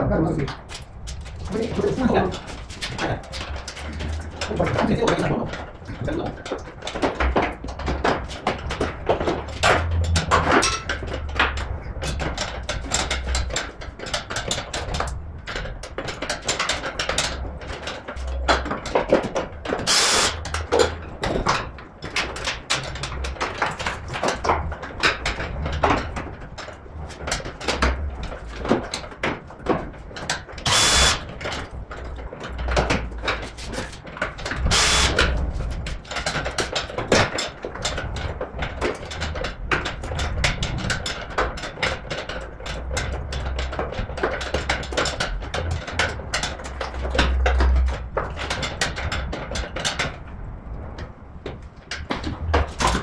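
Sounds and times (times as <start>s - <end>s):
hand tools knocking on metal: 0.3s - 50.2s
ratchet clatter: 0.5s - 51.1s
power tool bursts: 19.9s - 20.4s, 30.7s - 31.2s, 34.7s - 35.2s.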